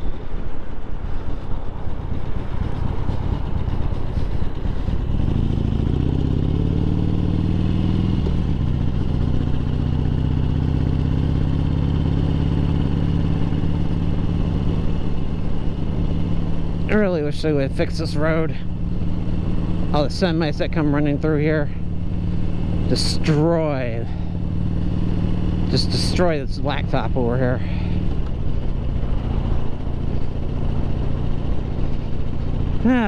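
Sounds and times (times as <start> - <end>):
motorcycle accelerating: 0.0 - 33.0.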